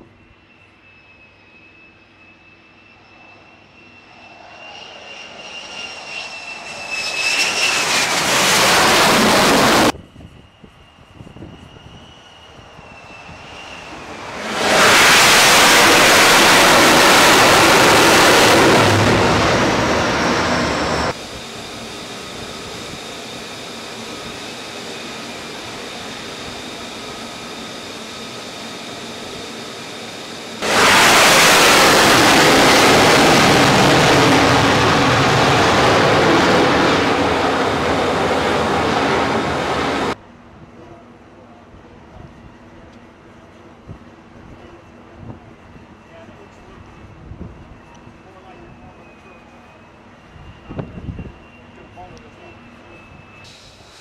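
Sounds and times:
jet engine roar: 0.0 - 40.2, 42.1 - 54.0
distant jet roar: 1.1 - 10.0, 11.5 - 40.2.

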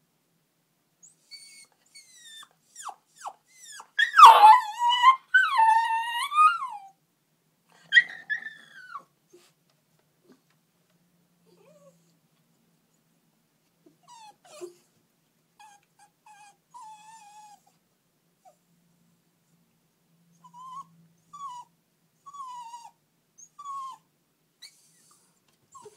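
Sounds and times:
puppy whining: 1.0 - 7.0, 7.8 - 9.5, 11.5 - 12.2, 13.9 - 14.9, 15.6 - 17.8, 20.3 - 25.9.

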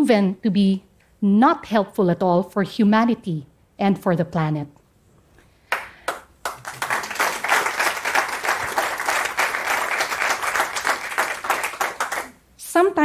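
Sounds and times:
audience applauding: 5.7 - 12.4.

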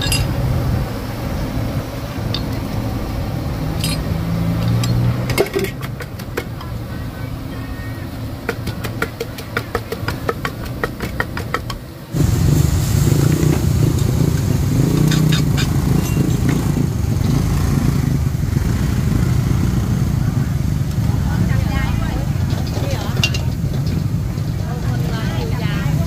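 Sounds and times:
spatula clattering: 3.8 - 6.7, 14.8 - 16.6
gas burner rushing: 10.3 - 26.0.

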